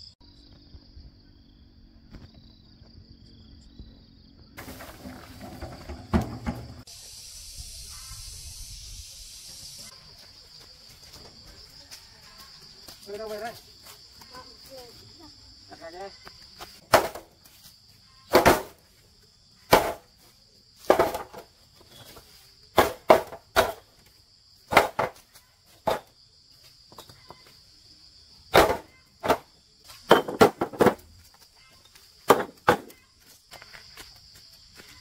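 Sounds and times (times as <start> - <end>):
crickets droning: 0.0 - 35.0
trowel knocking and scraping bricks: 20.8 - 21.5, 28.5 - 31.1, 32.2 - 33.0.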